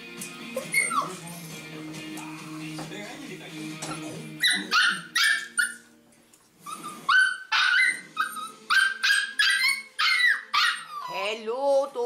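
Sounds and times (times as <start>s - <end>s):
puppy yipping and barking: 0.6s - 1.2s, 4.4s - 5.9s, 6.6s - 11.2s.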